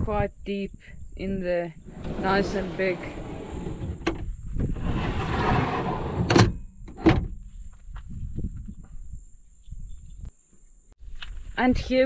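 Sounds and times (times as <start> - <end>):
drawer rolling on runners: 1.8 - 6.6
metal drawers clunking shut: 1.9 - 7.3.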